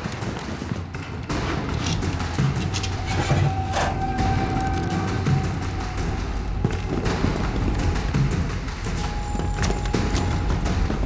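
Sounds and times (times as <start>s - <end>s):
tense action film score: 0.0s - 11.0s
heavy low percussion thuds: 4.0s - 11.0s.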